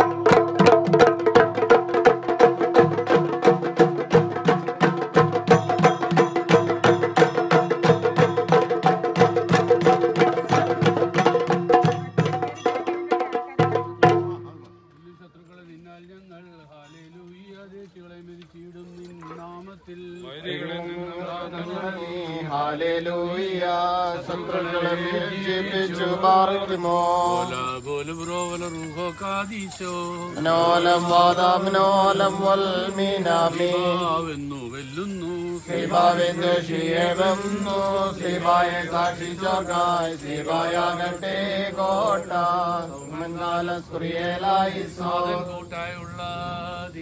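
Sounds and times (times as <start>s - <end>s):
men chanting a hymn: 17.5s - 47.0s.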